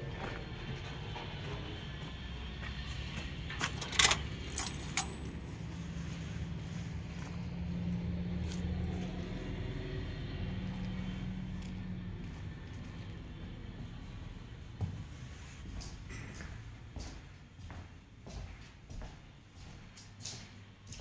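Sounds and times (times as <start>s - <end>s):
sharp metallic clinks: 3.8s - 5.7s.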